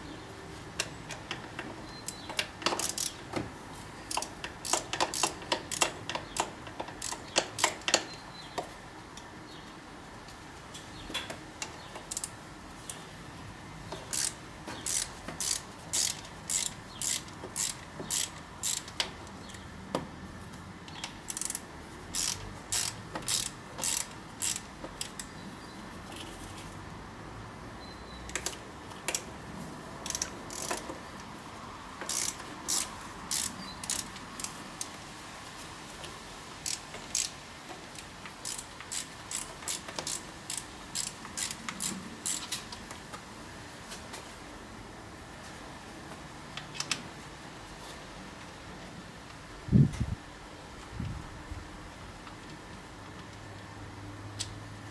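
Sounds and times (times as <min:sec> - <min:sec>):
ratchet wrench clicking: 0:02.0 - 0:03.2, 0:04.1 - 0:08.2, 0:11.6 - 0:13.0, 0:13.9 - 0:19.1, 0:20.9 - 0:25.3, 0:30.0 - 0:31.0, 0:32.0 - 0:34.9, 0:36.6 - 0:42.6.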